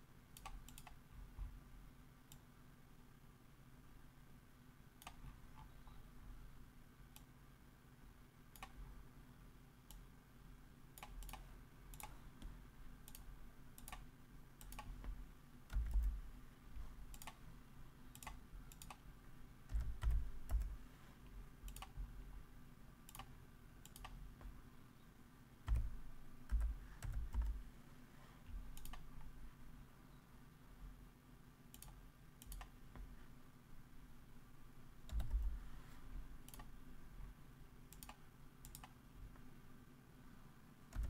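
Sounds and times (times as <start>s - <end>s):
computer mouse clicks: 0.3s - 1.0s, 5.0s - 5.8s, 7.1s - 7.3s, 8.5s - 8.8s, 9.9s - 10.1s, 11.0s - 16.2s, 17.1s - 17.4s, 18.1s - 19.0s, 19.7s - 20.8s, 21.6s - 22.0s, 23.1s - 24.6s, 28.7s - 29.3s, 31.7s - 33.1s, 35.1s - 35.6s, 36.4s - 36.8s, 37.9s - 39.5s
keyboard keystrokes: 15.7s - 16.2s, 19.7s - 20.8s, 35.1s - 35.5s.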